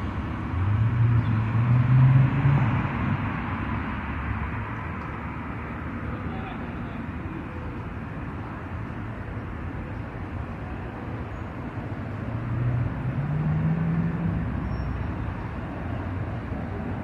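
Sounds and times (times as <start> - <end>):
vehicle engine passing: 0.0 - 4.7, 12.2 - 15.0
traffic rumble: 0.0 - 17.0.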